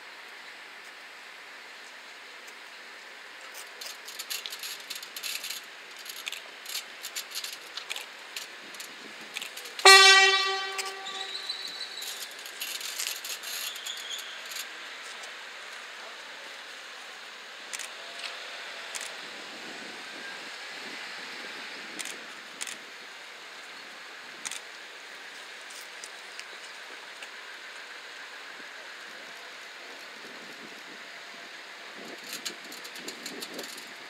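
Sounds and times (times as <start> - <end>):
train horn blast: 9.8 - 12.2.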